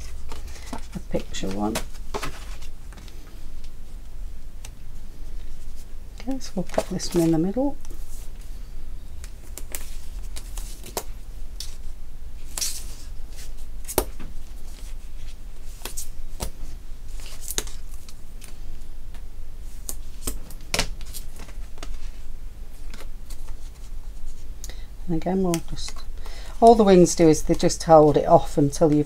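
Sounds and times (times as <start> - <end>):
tape ripping and crinkling: 17.1 - 18.5.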